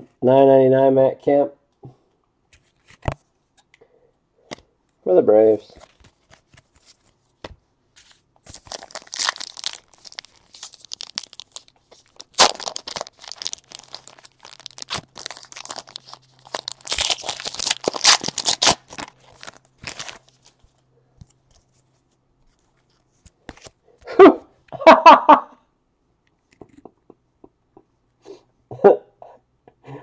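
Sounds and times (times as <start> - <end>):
card pack wrapper crinkling and tearing: 8.0 - 20.8.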